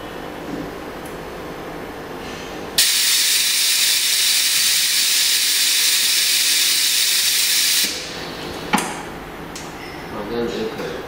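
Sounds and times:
compressed air hiss: 0:02.8 - 0:08.2.

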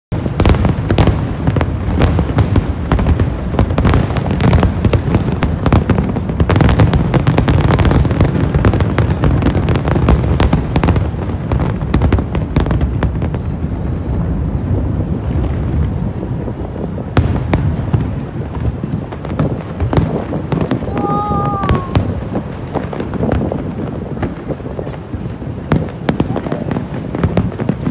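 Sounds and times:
firework shell bursts and crackle: 0:00.2 - 0:27.9
sharp firework bang: 0:17.1 - 0:27.9.

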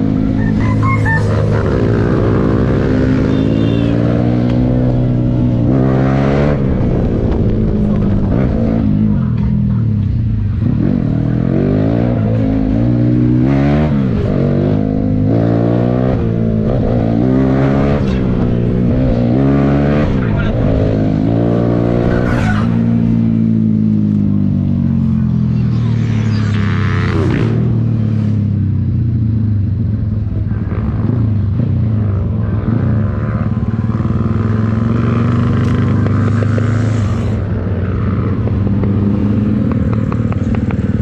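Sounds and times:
motorcycle engine running: 0:20.2 - 0:41.0.

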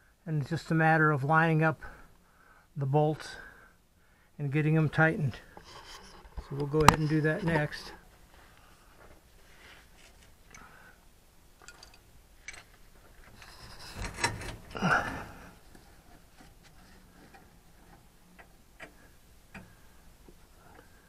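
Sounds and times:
knocking and handling noise: 0:05.6 - 0:07.8.

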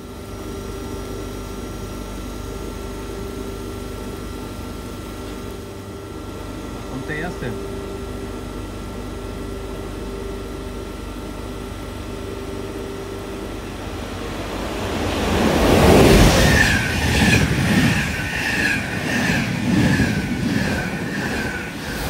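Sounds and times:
passing train rush: 0:13.0 - 0:22.0.

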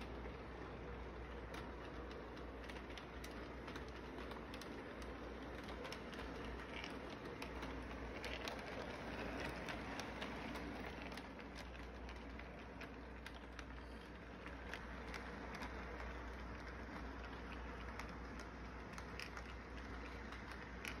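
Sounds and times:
toy train whirring: 0:00.0 - 0:21.0
wheels clicking on rails: 0:00.0 - 0:21.0.

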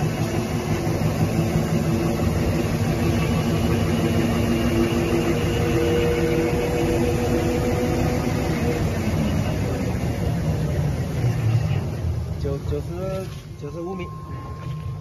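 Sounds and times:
held machine tones: 0:13.6 - 0:15.0.

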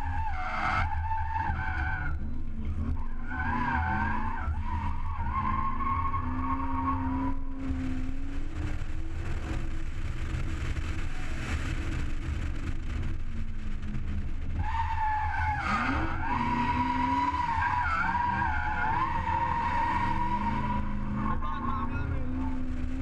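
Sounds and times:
high wavering tyre squeal: 0:00.0 - 0:08.2, 0:14.6 - 0:23.0
car engine revving: 0:00.0 - 0:23.0
tyre and road noise: 0:00.0 - 0:23.0.

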